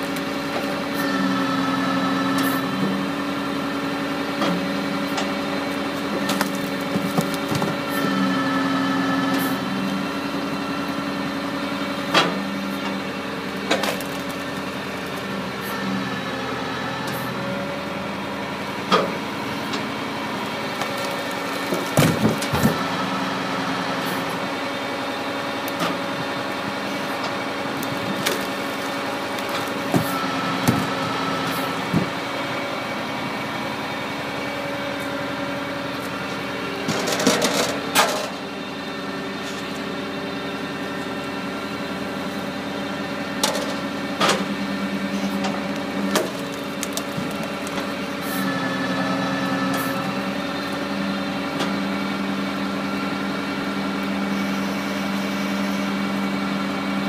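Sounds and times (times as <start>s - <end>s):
tractor engine running: 0.0s - 57.0s
logs cracking as they split: 6.2s - 7.8s, 13.6s - 15.4s, 20.7s - 22.6s, 27.2s - 31.1s, 45.4s - 48.2s.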